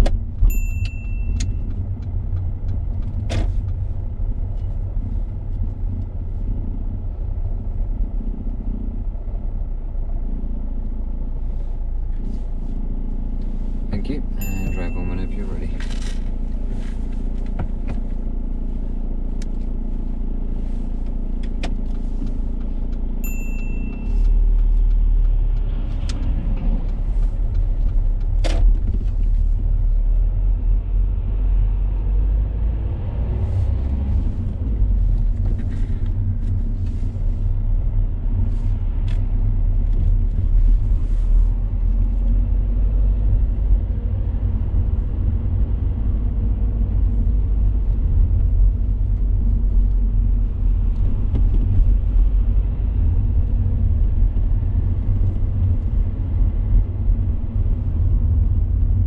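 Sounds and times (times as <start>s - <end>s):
car cabin road rumble: 0.0s - 59.0s
short high beep: 14.4s - 15.3s, 23.2s - 24.4s.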